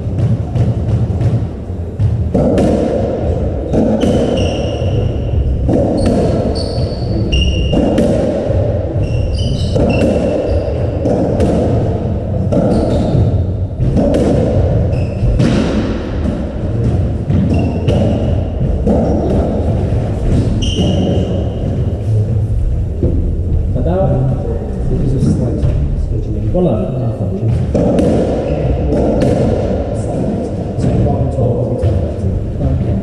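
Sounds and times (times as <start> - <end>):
ball smacking racket and walls: 0.0 - 24.4, 27.4 - 32.2
shoe squeaks on wooden floor: 4.0 - 5.3, 5.9 - 8.0, 9.0 - 11.0, 12.6 - 13.2, 14.9 - 15.4, 17.4 - 18.4, 20.3 - 22.0.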